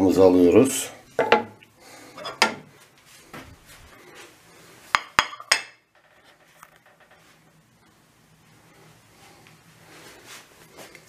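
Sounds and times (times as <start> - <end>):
plate clinking on stone counter: 1.1 - 1.6, 2.2 - 2.6, 4.9 - 7.2.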